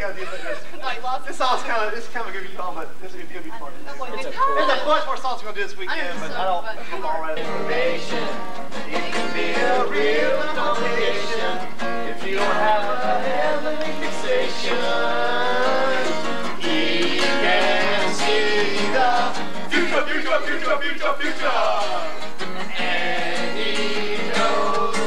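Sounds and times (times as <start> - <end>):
acoustic guitar strumming: 6.1 - 25.0
person singing: 7.4 - 25.0.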